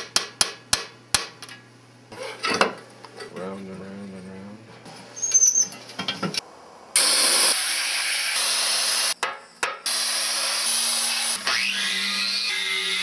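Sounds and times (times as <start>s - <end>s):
sandblaster hissing: 7.0s - 9.2s.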